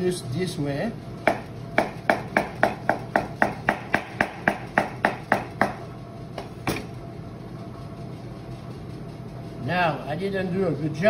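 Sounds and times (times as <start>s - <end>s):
knife chopping on cutting board: 1.2s - 5.8s, 6.4s - 6.9s.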